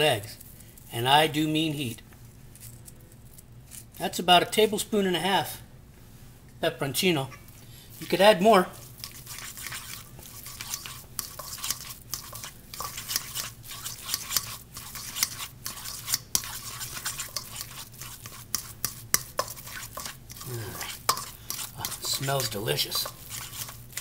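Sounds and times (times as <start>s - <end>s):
fork scraping metal bowl: 7.9s - 24.0s.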